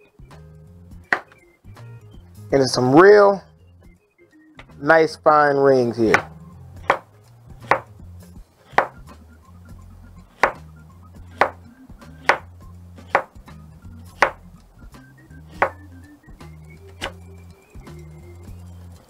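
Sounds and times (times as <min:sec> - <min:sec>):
quiet background music: 0:00.0 - 0:19.0
knife slicing onion: 0:06.1 - 0:07.0, 0:07.6 - 0:07.9, 0:08.6 - 0:09.2, 0:10.3 - 0:11.6, 0:12.2 - 0:13.4, 0:14.0 - 0:14.5, 0:15.4 - 0:15.8.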